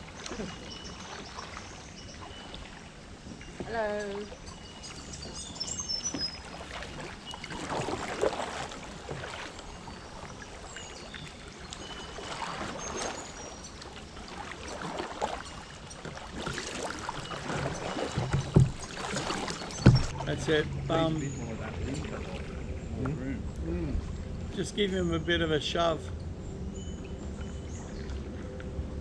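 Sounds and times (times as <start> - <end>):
paddles splashing in water: 0.0 - 22.6
low knock: 19.8 - 20.2.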